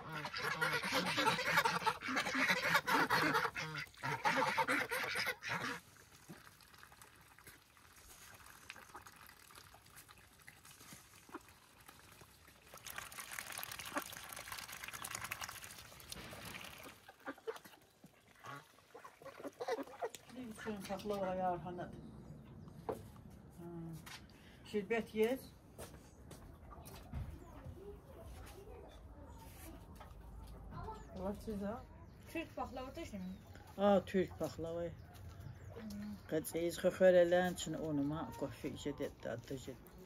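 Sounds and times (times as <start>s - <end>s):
geese honking: 0.0s - 5.8s
ducks quacking: 0.0s - 6.0s, 16.7s - 21.6s
bills splashing in water trough: 0.0s - 21.3s.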